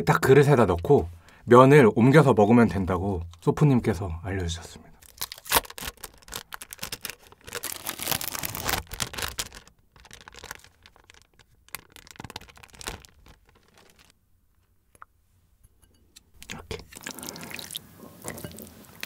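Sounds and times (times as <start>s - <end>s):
plastic film crinkling: 5.0s - 14.2s.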